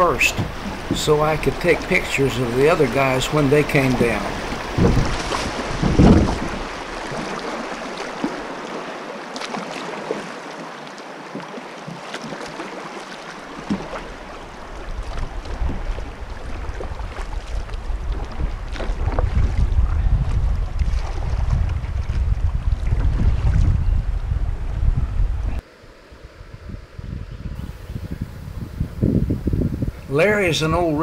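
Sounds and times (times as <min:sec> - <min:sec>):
wind rumble on microphone: 0:00.0 - 0:07.6, 0:13.7 - 0:31.0
river water rushing over riffles: 0:00.0 - 0:18.7.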